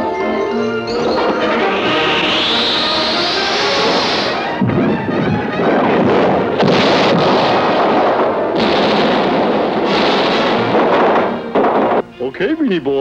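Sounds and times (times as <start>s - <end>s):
cartoon music: 0.0s - 5.8s
loud explosion blasts: 1.0s - 12.1s.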